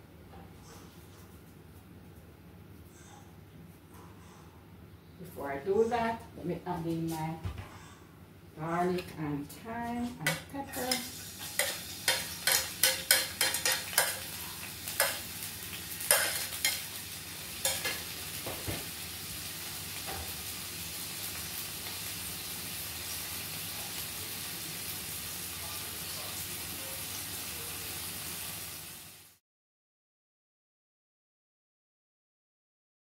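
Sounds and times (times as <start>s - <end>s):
spoon scraping a pan: 10.1s - 15.4s, 16.0s - 18.2s
food sizzling in a pan: 10.2s - 29.4s.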